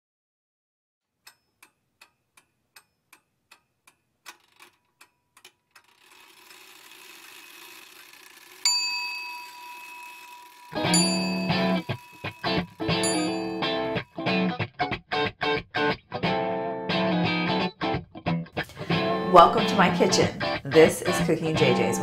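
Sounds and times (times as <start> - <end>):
clock-like ticks: 1.2 - 8.6, 9.3 - 14.0
bright bell-like ding: 8.7 - 14.0.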